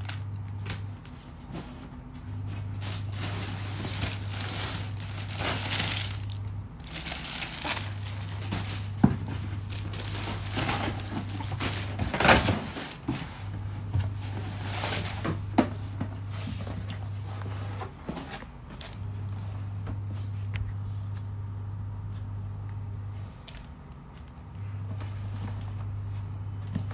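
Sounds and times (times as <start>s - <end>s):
steady low hum: 0.0s - 26.9s
plastic wrapping crinkling: 2.6s - 13.1s.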